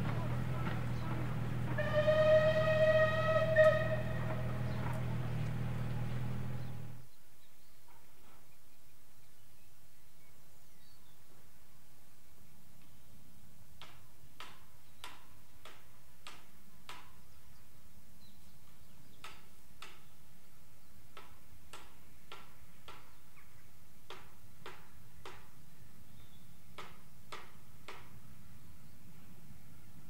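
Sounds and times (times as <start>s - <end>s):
steam locomotive chuffs: 0.0s - 7.0s.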